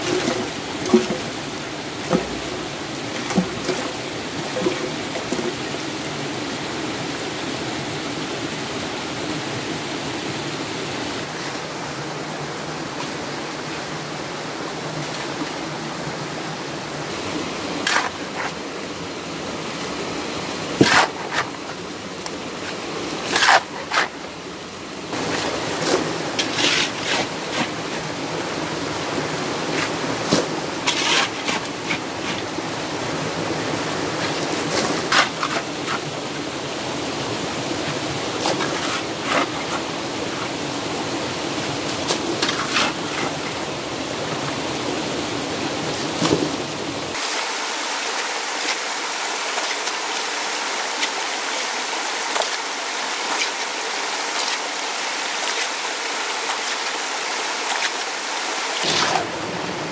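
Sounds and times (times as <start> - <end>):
stream rushing over rocks: 0.0 - 59.9.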